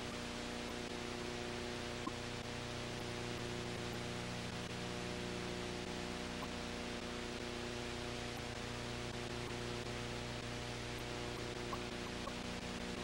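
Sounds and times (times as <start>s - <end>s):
low electrical hum: 0.0s - 13.0s
steady hiss: 0.0s - 13.0s
faint clicks: 2.0s - 2.2s, 10.9s - 12.5s.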